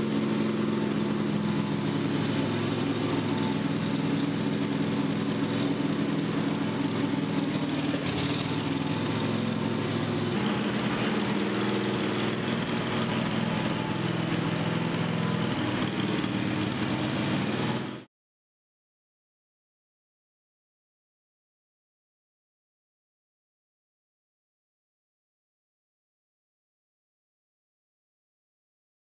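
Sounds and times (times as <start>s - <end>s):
floor grinder engine running: 0.0s - 18.1s.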